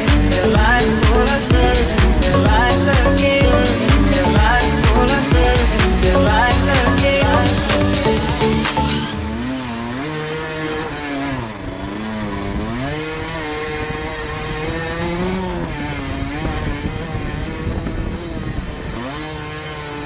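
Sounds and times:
small motorcycle engine revving: 0.0s - 20.0s.

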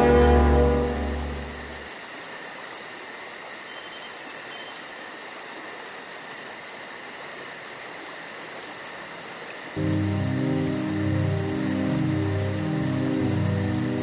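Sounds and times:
fast high pulsing: 0.0s - 1.9s
insects chirping: 0.0s - 14.0s.

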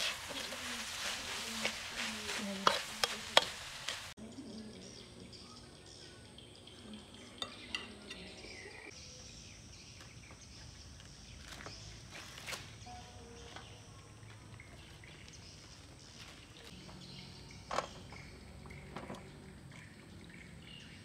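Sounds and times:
corn husks rustling and tearing: 0.0s - 4.1s, 11.2s - 12.9s.

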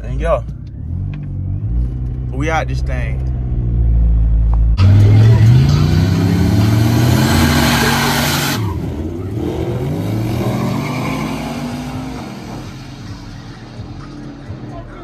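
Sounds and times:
drag racing cars accelerating: 4.8s - 14.7s.

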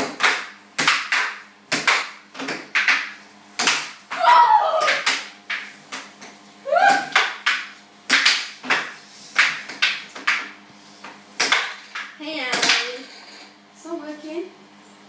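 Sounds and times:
air hockey puck and mallets clacking: 0.0s - 13.3s
person whooping: 4.1s - 5.1s, 6.6s - 7.2s.

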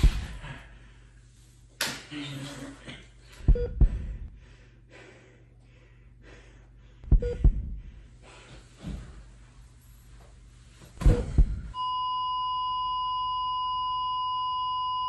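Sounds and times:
faint breathing: 3.2s - 9.4s
heartbeat thumps: 3.4s - 4.4s, 7.0s - 8.0s, 11.0s - 11.8s.

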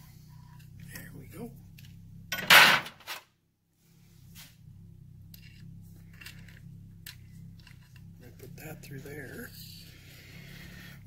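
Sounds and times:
wires scraping and clicking: 5.3s - 9.1s.

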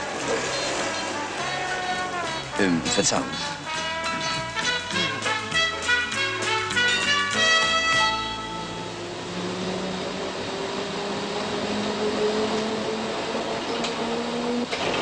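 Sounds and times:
music: 0.0s - 9.3s.

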